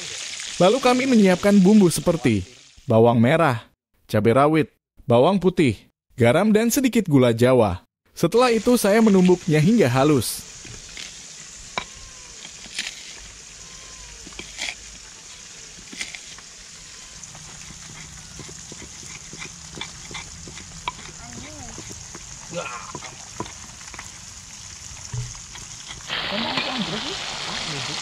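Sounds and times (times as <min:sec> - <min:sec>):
stone pestle grinding in mortar: 0:13.8 - 0:26.1
stone knocking on stone: 0:25.1 - 0:25.4.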